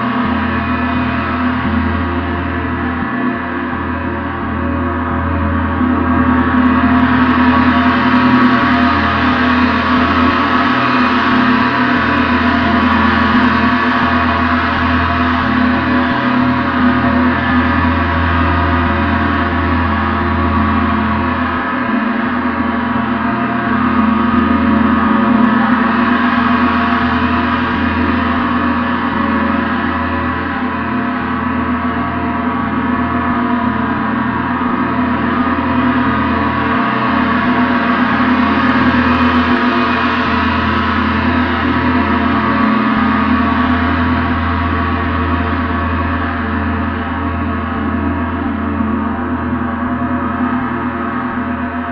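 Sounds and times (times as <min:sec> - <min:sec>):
gong ringing continuously: 0:00.0 - 0:51.9.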